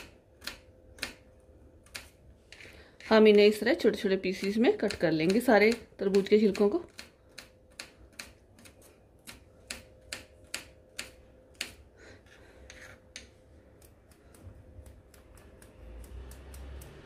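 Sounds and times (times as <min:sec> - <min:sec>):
knife chopping on board: 0:04.4 - 0:07.1.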